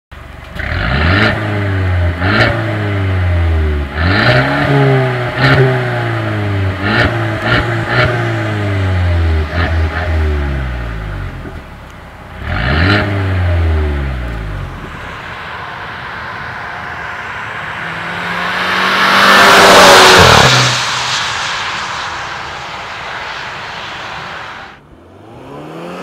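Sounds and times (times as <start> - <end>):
exhaust cracks: 0.3 - 25.0
car engine revving: 0.4 - 26.0.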